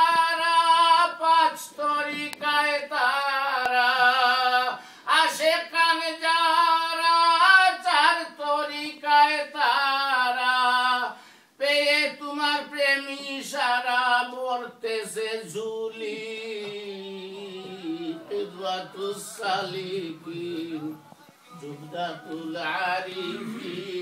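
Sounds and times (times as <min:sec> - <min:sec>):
person singing unaccompanied: 0:00.0 - 0:24.0.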